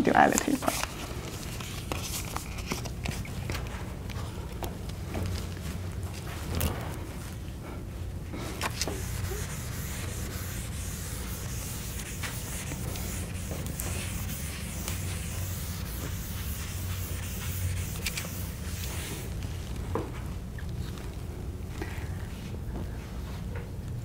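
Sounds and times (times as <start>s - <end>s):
low room hum: 0.0s - 24.0s
eraser rubbing on blackboard: 8.8s - 19.3s.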